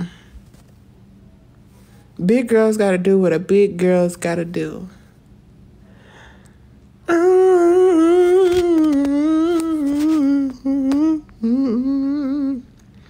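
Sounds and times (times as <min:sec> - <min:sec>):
woman humming: 0:07.0 - 0:12.8.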